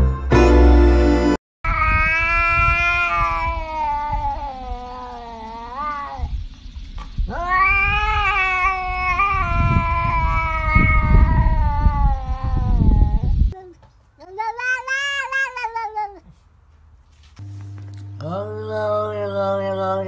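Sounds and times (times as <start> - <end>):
cat yowling: 1.7 - 6.3, 7.3 - 13.3, 14.2 - 16.4.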